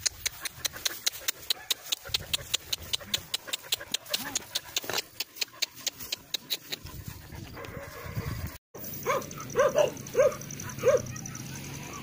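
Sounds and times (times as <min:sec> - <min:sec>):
dog barking: 0:01.5 - 0:01.9, 0:09.0 - 0:11.4.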